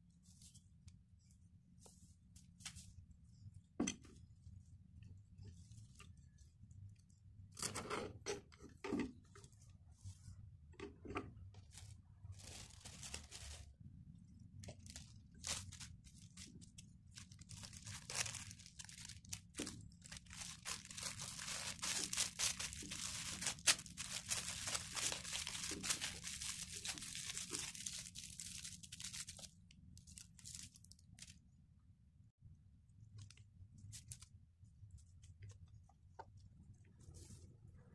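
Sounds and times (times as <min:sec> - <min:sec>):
cling film crinkling: 0:14.6 - 0:31.4.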